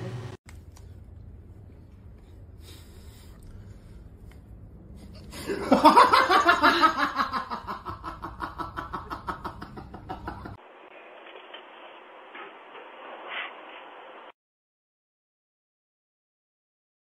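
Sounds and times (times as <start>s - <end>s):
person laughing loudly: 5.4s - 10.6s.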